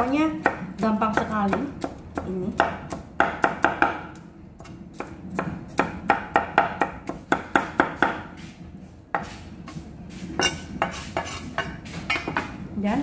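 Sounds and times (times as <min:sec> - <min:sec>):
cleaver chopping on wooden board: 0:01.2 - 0:08.3.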